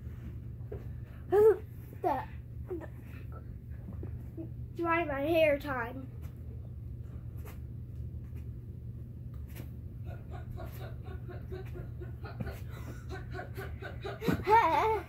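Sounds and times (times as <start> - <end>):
low steady hum: 0.0 - 15.0
child giggling: 10.1 - 15.0.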